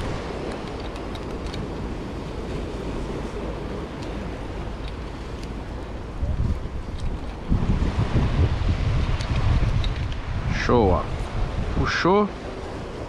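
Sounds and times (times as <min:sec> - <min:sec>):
ocean surf rushing: 0:00.0 - 0:13.0
wind buffeting microphone: 0:00.0 - 0:13.0.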